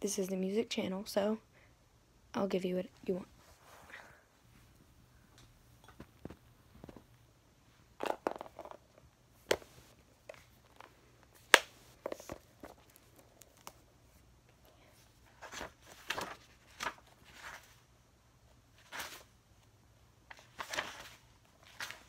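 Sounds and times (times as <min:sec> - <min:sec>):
book pages leafed through: 0:15.2 - 0:17.8, 0:18.8 - 0:19.3, 0:20.3 - 0:22.0.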